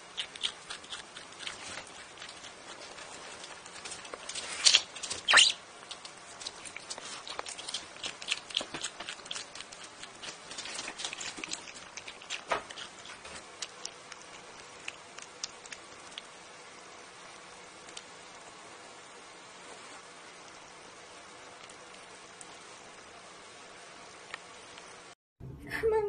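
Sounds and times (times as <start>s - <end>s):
animal crunching and chewing: 0.0s - 18.9s, 19.6s - 23.2s.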